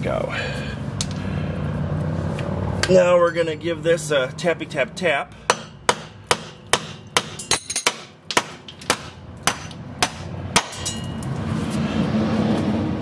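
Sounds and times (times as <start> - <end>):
hammer striking metal bolt: 5.5 - 11.2.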